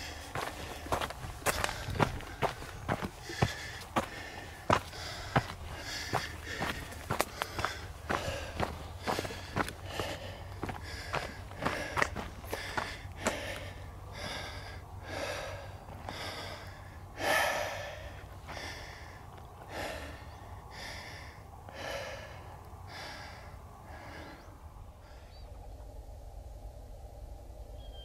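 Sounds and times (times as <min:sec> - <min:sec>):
wind on microphone: 0:00.0 - 0:03.4
person breathing hard: 0:00.0 - 0:25.4.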